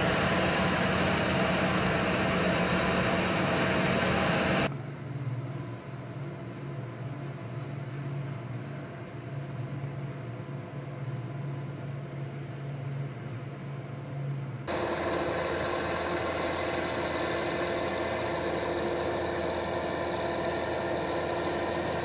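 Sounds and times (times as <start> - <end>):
combine harvesters droning: 0.0 - 5.7, 14.2 - 22.0.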